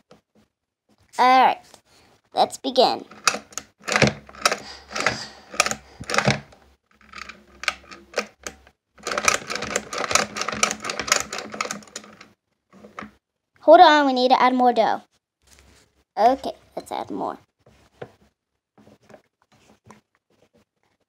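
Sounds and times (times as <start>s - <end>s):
toy mixer gears clicking: 3.1s - 13.1s.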